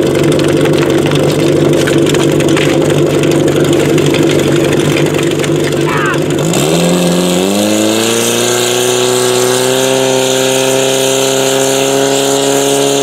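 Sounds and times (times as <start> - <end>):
pump engine idling: 0.0 - 7.5.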